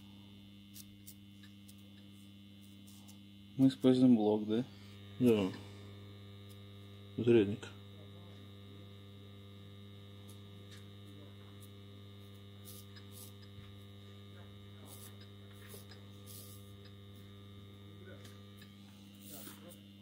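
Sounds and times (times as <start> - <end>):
mains hum: 0.0 - 20.0.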